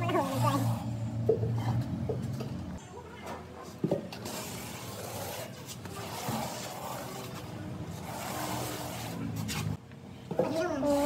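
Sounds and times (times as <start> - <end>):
steel trowel scraping concrete: 0.0 - 0.9, 4.2 - 9.8.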